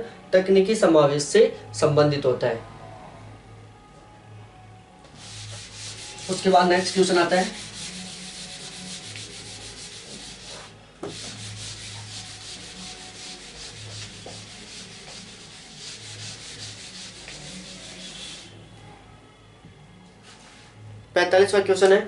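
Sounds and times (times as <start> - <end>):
eraser scrubbing whiteboard: 5.2 - 18.6.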